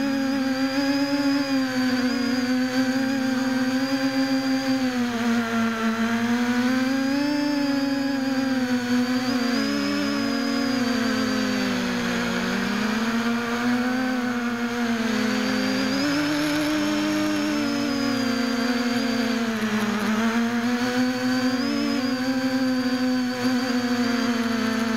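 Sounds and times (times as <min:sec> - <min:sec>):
drone propellers whining: 0:00.0 - 0:24.9.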